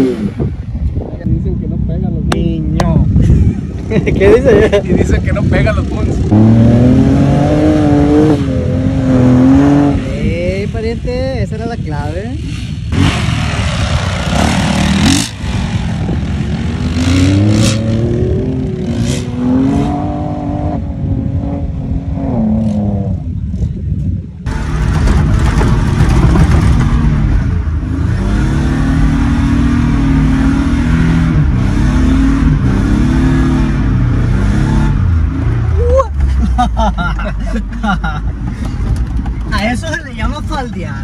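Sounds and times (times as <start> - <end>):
vehicle engine revving: 5.7 - 10.3, 12.4 - 23.4, 24.5 - 35.8.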